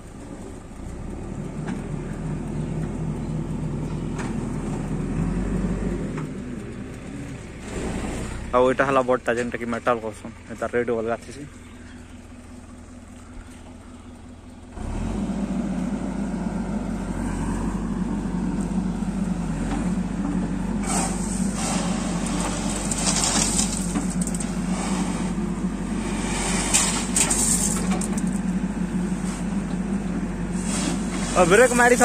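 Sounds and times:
diesel engine running: 0:00.0 - 0:32.0
rushing rattling bursts: 0:20.7 - 0:28.8.

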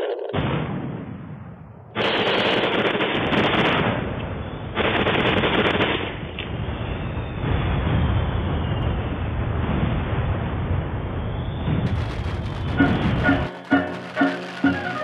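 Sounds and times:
rapid gunfire: 0:02.0 - 0:03.9, 0:11.9 - 0:15.0.

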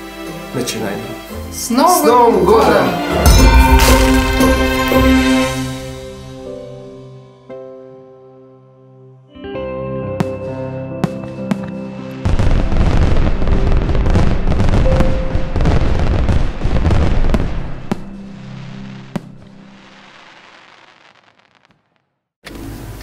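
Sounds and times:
background music: 0:00.0 - 0:20.5
fireworks bangs: 0:03.2 - 0:06.4, 0:10.2 - 0:22.1
fireworks crackling and popping: 0:10.2 - 0:22.2.

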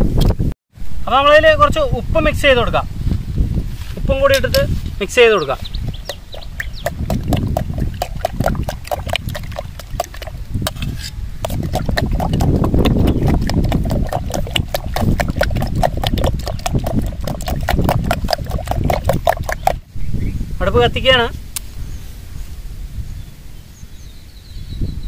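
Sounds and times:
egg mixture sloshing: 0:05.7 - 0:19.9.

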